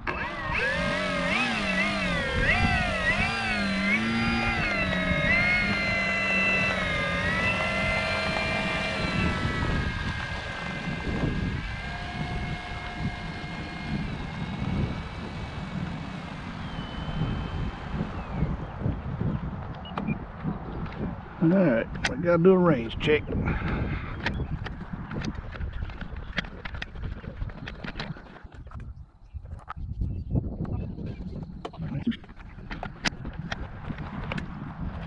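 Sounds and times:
model plane electric motor whining: 0.0s - 19.8s.

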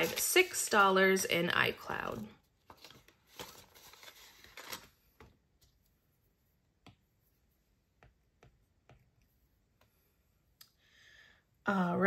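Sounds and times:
plastic envelope rustling: 0.0s - 5.7s.

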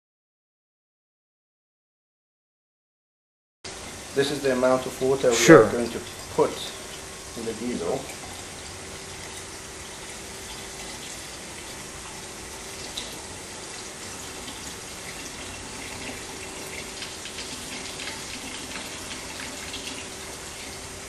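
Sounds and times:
faint steady hum: 3.7s - 21.0s
water trickling and splashing: 5.8s - 21.0s.

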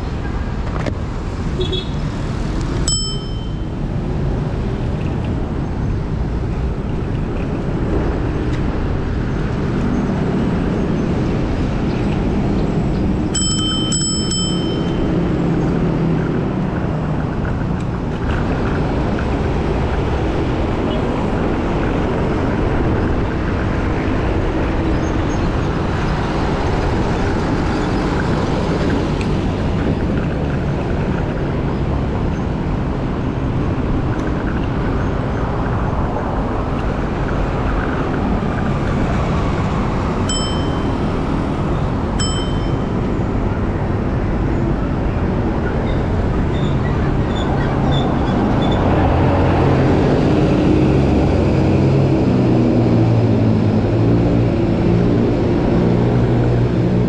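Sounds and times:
traffic rumble: 0.0s - 57.0s
short high dings: 2.9s - 3.8s, 13.4s - 15.3s, 40.3s - 41.3s, 42.2s - 43.0s.

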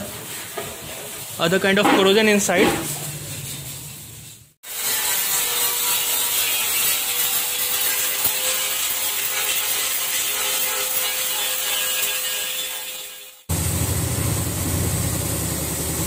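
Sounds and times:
wire brush grinder scouring metal: 4.6s - 13.5s.

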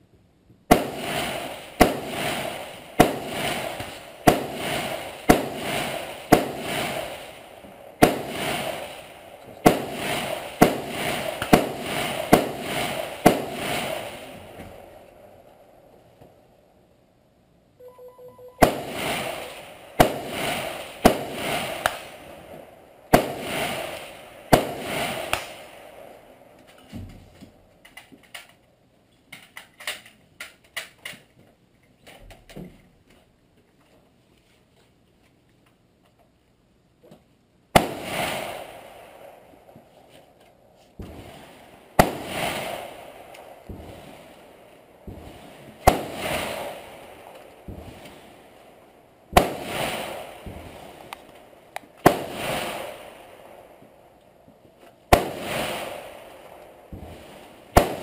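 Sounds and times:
rifle shots echoing: 0.7s - 15.1s, 18.6s - 26.4s, 37.7s - 39.4s, 41.0s - 48.4s, 49.3s - 51.3s, 52.0s - 53.8s, 55.1s - 58.0s.

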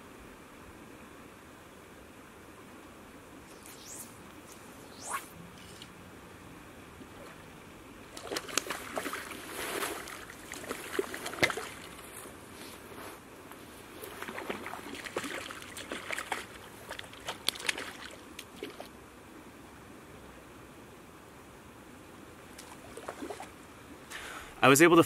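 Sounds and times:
water splashing: 7.1s - 12.2s, 14.0s - 18.9s, 22.5s - 23.5s.

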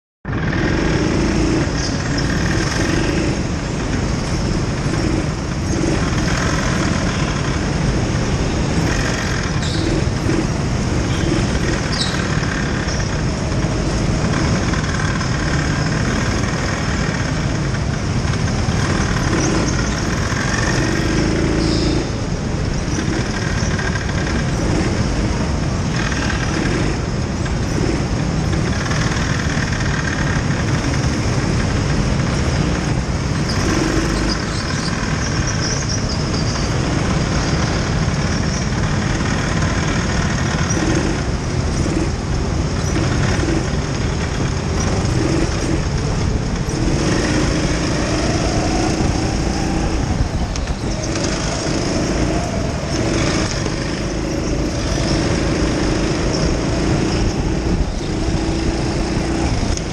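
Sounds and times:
racing kart motor and wind rush: 0.2s - 59.9s
high tyre squeals: 4.0s - 17.5s, 28.7s - 41.2s, 46.6s - 59.6s.

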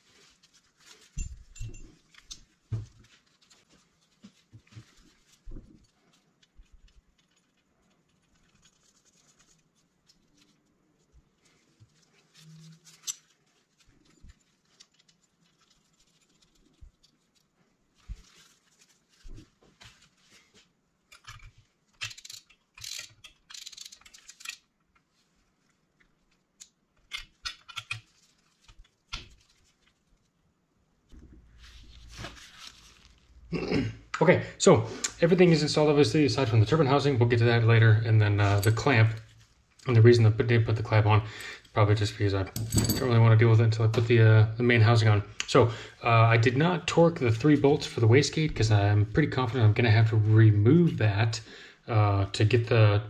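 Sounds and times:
faint clicks and taps of metal parts: 1.1s - 8.8s.

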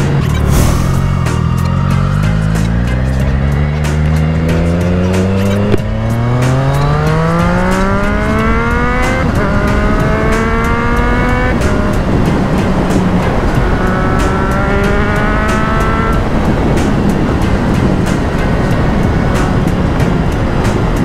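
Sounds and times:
motorcycle engine accelerating: 0.0s - 21.0s
wind buffeting microphone: 5.2s - 21.0s.

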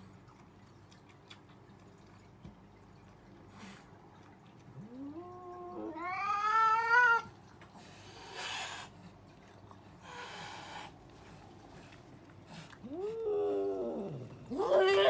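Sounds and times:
cat yowling aggressively: 5.1s - 7.3s, 12.8s - 15.0s.

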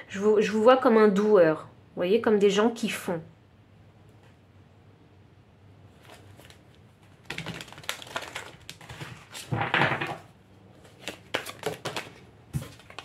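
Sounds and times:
cards being shuffled: 10.7s - 13.0s.

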